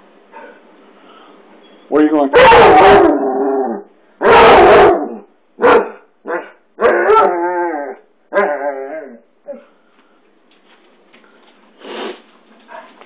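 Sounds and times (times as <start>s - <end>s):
dog barking and baying: 2.3s - 3.4s, 4.2s - 7.5s.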